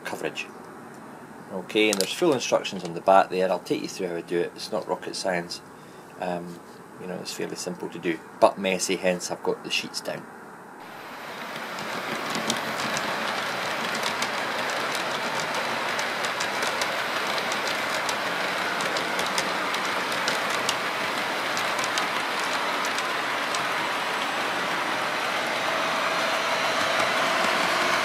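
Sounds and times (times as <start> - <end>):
faint steady hum: 0.0 - 28.0
model train running on track: 10.8 - 28.0
wheels clicking over rails: 10.8 - 28.0.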